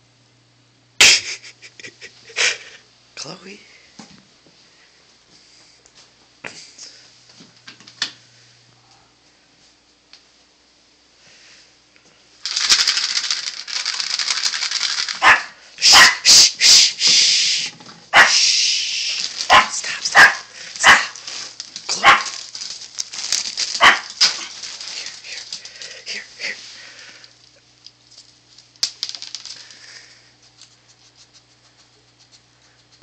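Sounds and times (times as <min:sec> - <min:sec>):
loud rustling: 0:12.4 - 0:15.4, 0:18.4 - 0:27.0
small dog yapping: 0:15.2 - 0:16.5, 0:18.1 - 0:21.3, 0:21.9 - 0:22.5, 0:23.6 - 0:24.6.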